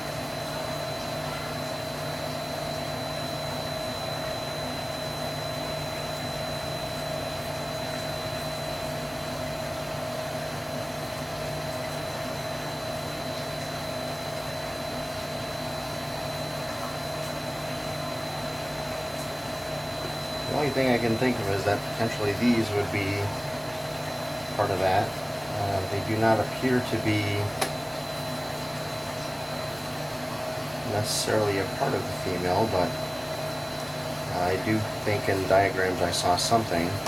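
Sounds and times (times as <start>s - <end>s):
mechanical hum: 0.0s - 37.0s
thin high whine: 11.8s - 37.0s.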